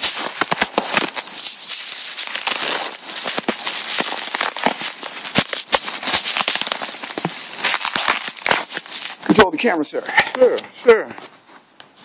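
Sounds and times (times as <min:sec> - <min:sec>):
bubble wrap crinkling and clicking: 0:00.0 - 0:09.4.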